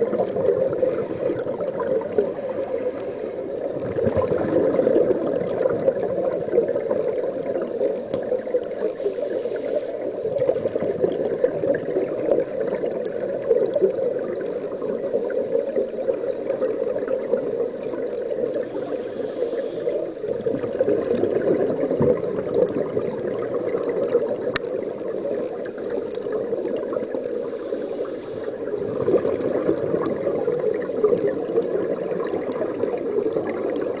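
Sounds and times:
scuba divers breathing: 0.0s - 5.0s, 7.5s - 10.9s, 17.8s - 20.4s, 25.0s - 32.2s
underwater rushing and bubbling water: 0.0s - 34.0s.

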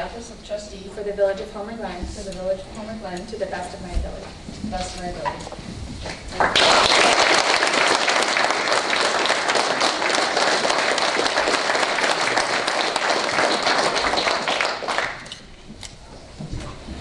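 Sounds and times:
audience applauding: 6.3s - 15.4s.

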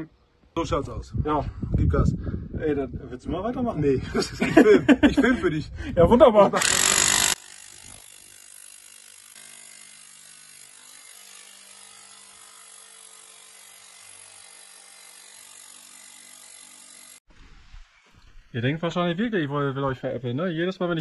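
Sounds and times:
power hammer driving rod: 6.6s - 17.2s.

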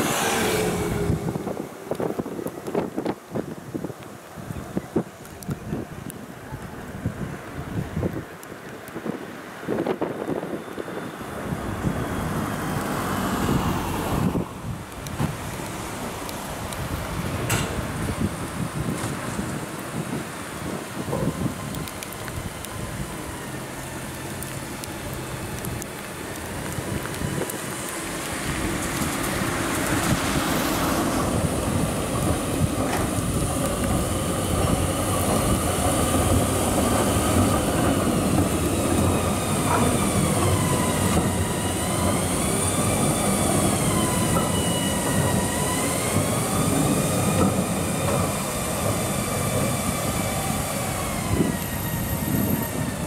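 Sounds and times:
tram running past: 0.0s - 53.0s
steel wheels squealing: 34.0s - 53.0s.

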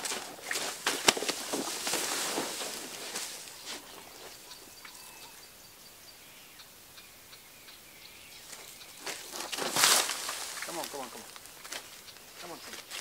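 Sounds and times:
faint bird chirps: 3.2s - 9.8s.

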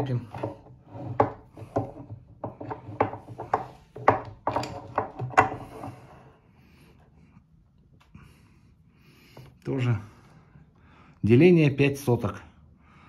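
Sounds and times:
metal clicks and knocks: 0.3s - 5.8s.

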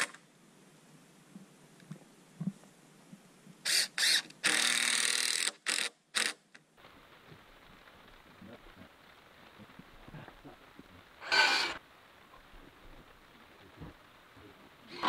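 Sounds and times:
cordless drill into wood: 3.7s - 6.4s.

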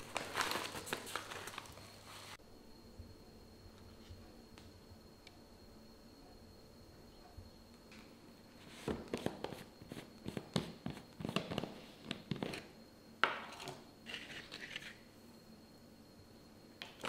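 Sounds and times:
plastic crinkling: 0.0s - 2.4s.

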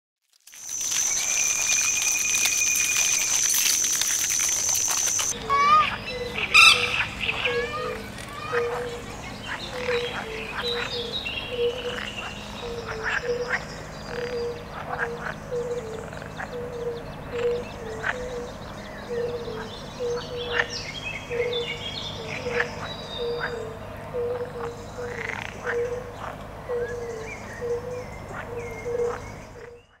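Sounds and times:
high chirps: 0.5s - 14.2s
frogs croaking: 0.5s - 30.0s.

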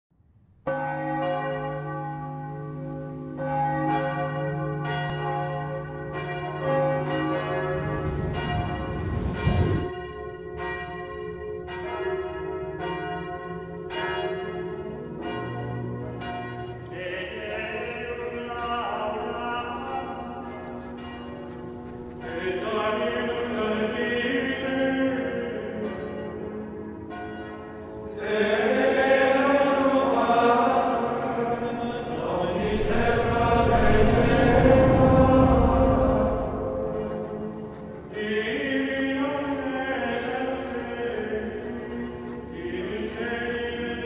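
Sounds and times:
church bells ringing: 0.6s - 44.0s
rushing noise: 7.8s - 9.9s, 32.0s - 37.5s.

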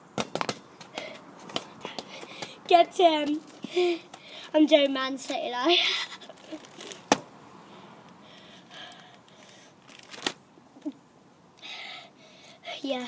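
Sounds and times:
trading cards rustling: 9.4s - 10.4s.

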